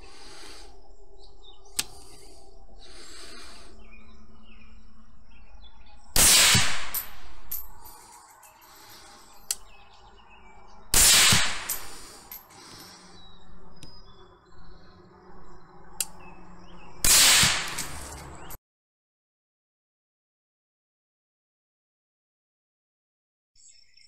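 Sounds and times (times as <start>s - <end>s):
rifle shots with echo: 6.2s - 7.4s, 10.9s - 12.0s, 17.0s - 18.0s.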